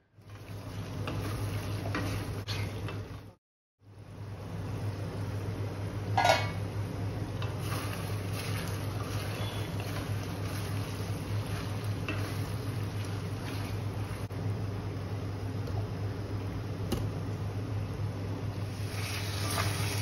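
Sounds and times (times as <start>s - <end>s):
spatula clanging on pan: 6.2s - 6.6s.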